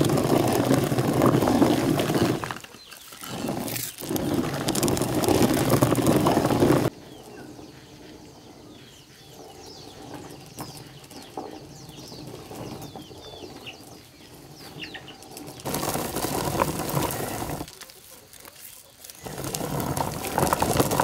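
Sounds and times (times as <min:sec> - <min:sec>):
chickens peeping: 0:07.0 - 0:15.6.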